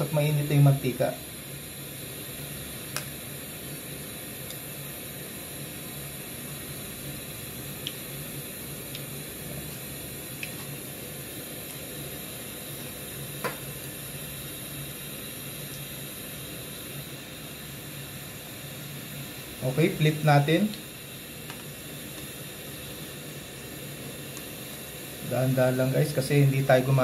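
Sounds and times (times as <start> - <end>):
deep-frying sizzle: 0.0 - 27.0
small oil pops: 2.9 - 3.1.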